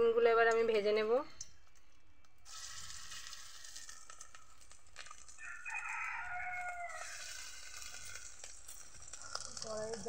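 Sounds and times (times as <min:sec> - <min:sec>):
batter sizzling in hot oil: 0:01.7 - 0:10.0
rooster crowing: 0:05.4 - 0:08.4.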